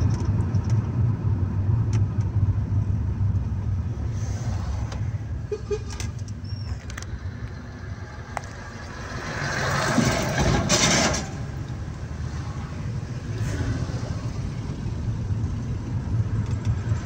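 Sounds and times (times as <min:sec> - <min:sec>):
car engine and road noise: 0:00.0 - 0:17.0
truck passing by whoosh: 0:07.1 - 0:15.0.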